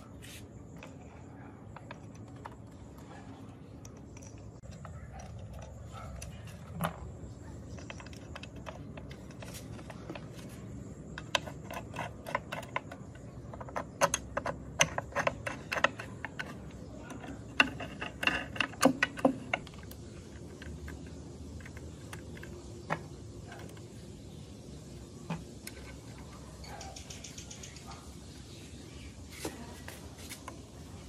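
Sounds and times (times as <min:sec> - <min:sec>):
small metallic clicks and taps: 0:01.7 - 0:24.0.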